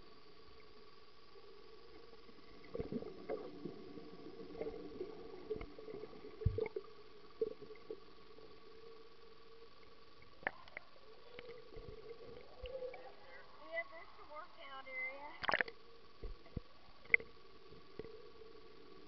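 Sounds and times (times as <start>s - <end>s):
underwater hum: 0.0s - 19.0s
camera knocking underwater: 15.4s - 17.2s.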